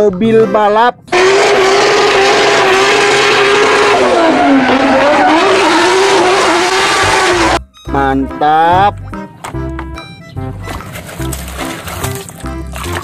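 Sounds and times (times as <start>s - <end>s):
car engine revving high: 1.1s - 7.6s
tyres squealing: 1.1s - 7.6s.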